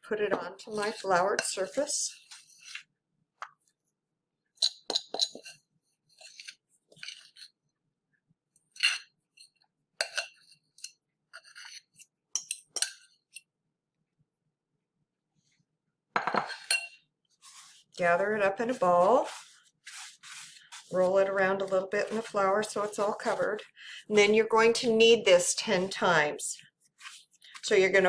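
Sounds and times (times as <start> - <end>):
utensil scraping glass bowl: 0.6 - 2.9, 4.6 - 7.6, 16.4 - 23.8.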